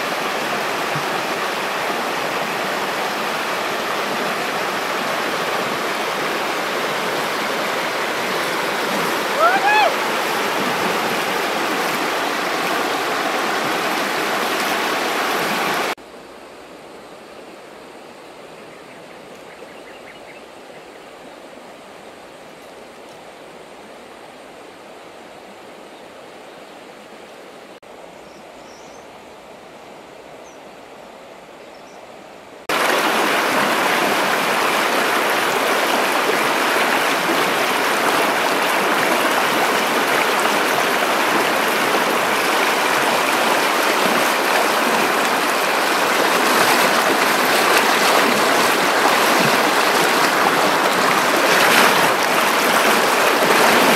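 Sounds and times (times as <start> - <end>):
river rushing over rocks: 0.0 - 16.0, 32.7 - 53.9.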